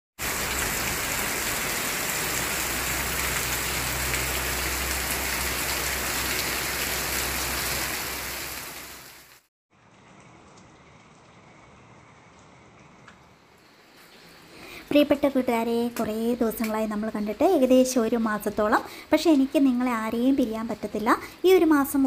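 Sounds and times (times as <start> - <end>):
heavy rain on plants and gravel: 0.2 - 11.6.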